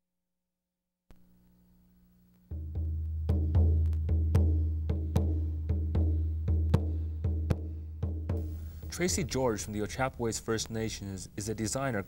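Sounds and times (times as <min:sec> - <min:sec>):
theme music drum beats: 0:02.5 - 0:09.4.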